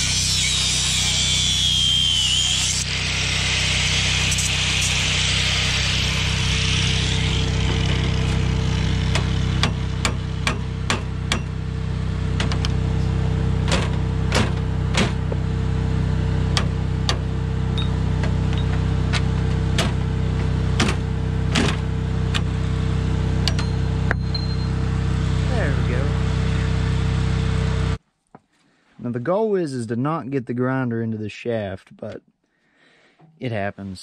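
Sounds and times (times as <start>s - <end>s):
engine hum: 1.4s - 28.0s
hammer knocking on metal: 9.1s - 11.6s.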